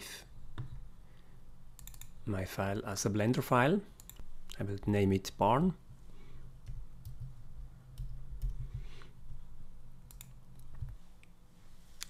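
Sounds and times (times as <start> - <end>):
low background hum: 0.0 - 12.0
keyboard and mouse clicks: 1.8 - 2.2, 8.0 - 8.6, 10.1 - 11.0.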